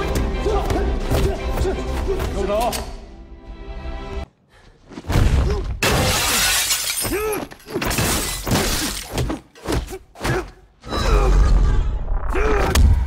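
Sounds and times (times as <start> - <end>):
glass shattering and falling: 5.8 - 9.1.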